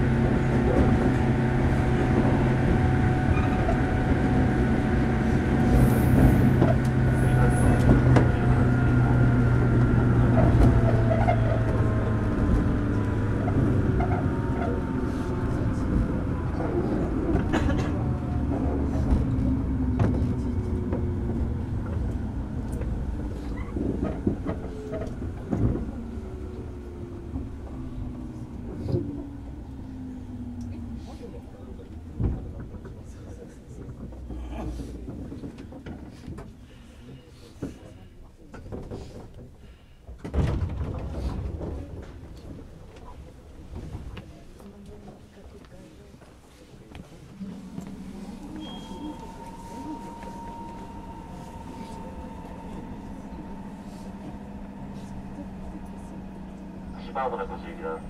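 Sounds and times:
train motor and gear whine: 0.0 - 33.1, 47.3 - 58.0
low hum: 47.3 - 58.0.

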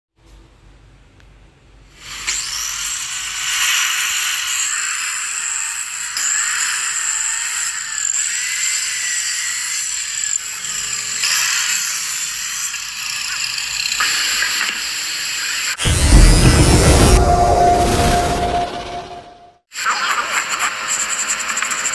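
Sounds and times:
miter saw whining: 15.8 - 19.4.

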